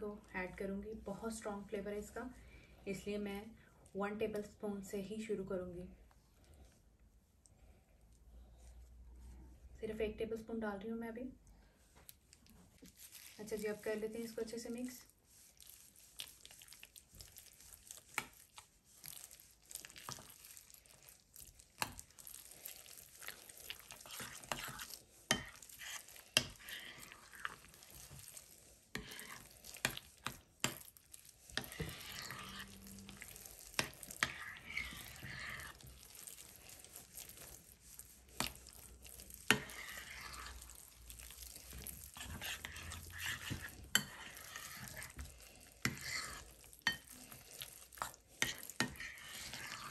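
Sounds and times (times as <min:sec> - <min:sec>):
spoon mashing food in a bowl: 0:15.6 - 0:49.9.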